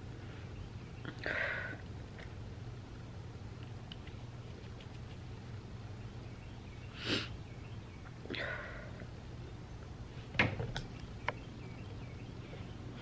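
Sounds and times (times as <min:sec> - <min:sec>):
person sniffling: 0:07.0 - 0:07.4.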